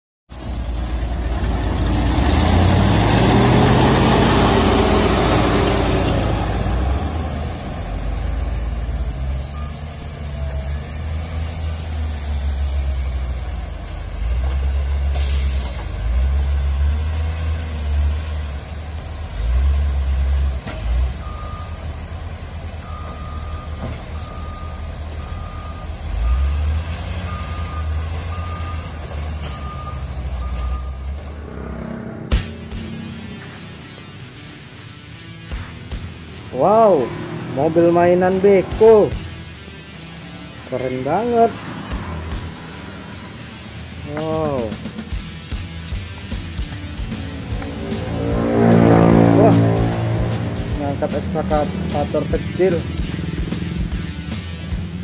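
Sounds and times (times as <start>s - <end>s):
diesel engine revving: 0.3s - 55.0s
reverse alarm beeping: 9.4s - 10.0s, 21.2s - 21.9s, 22.8s - 32.3s.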